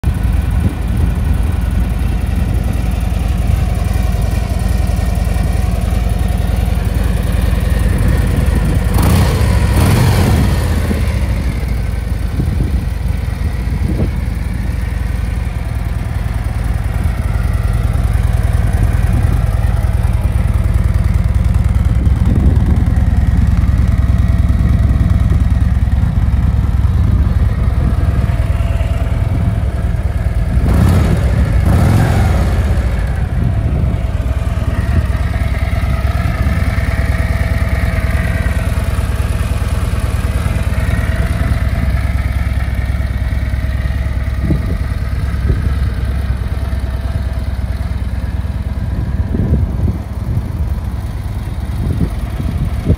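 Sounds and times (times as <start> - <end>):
motorcycle engine idling: 0.0 - 52.9.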